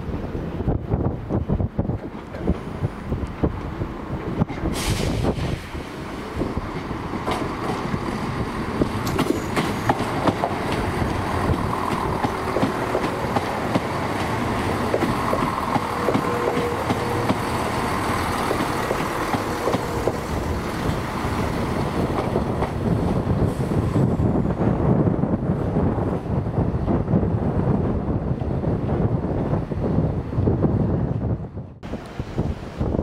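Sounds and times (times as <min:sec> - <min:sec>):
diesel train engines rumbling: 0:00.0 - 0:33.0
train wheels clicking over rail joints: 0:06.6 - 0:24.1.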